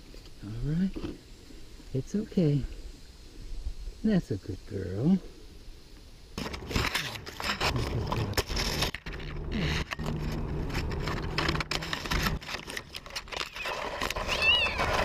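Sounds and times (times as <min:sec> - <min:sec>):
low steady hum: 0:00.0 - 0:13.4
cloth and branches rustling: 0:05.0 - 0:15.0.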